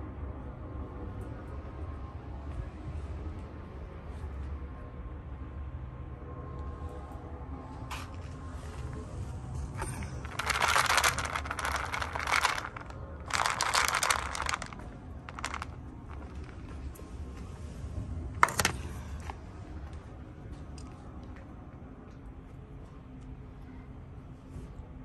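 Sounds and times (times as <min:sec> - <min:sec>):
plastic tray clack on pavement: 0:09.8 - 0:16.5, 0:18.4 - 0:18.8
dry cat food rattling in tray: 0:09.8 - 0:16.8, 0:18.4 - 0:18.8.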